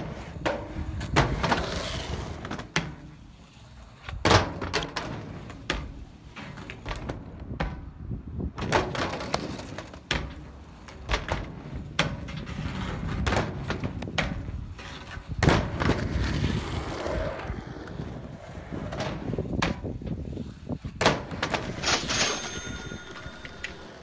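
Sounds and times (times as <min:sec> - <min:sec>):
skateboard wheels rolling: 0:00.0 - 0:24.0
skateboard clacking on surface: 0:04.0 - 0:07.9, 0:08.6 - 0:16.3, 0:20.9 - 0:24.0.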